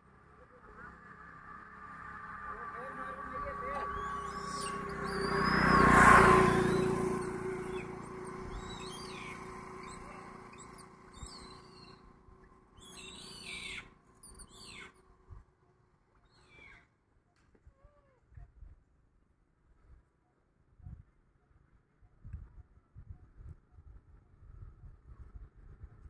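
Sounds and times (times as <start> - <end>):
vehicle passing on road: 0.0 - 15.1
birds chirping: 2.8 - 15.1.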